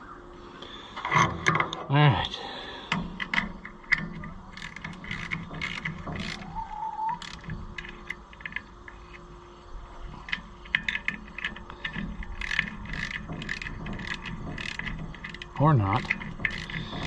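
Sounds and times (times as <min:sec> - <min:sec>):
wrench clicking on metal fittings: 0:03.2 - 0:06.5, 0:10.3 - 0:17.0.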